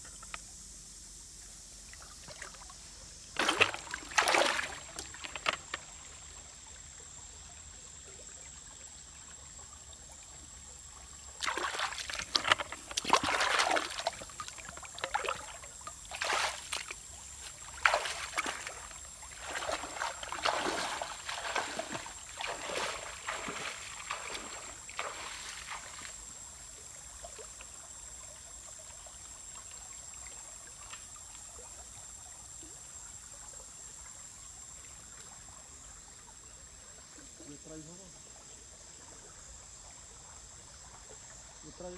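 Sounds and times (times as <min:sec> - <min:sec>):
stream trickling: 0:00.0 - 0:41.9
legs wading through water: 0:02.2 - 0:06.7, 0:10.4 - 0:26.4.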